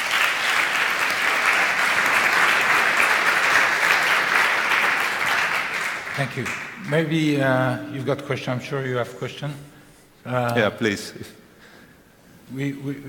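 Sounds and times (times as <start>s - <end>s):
audience applause: 0.0s - 7.2s.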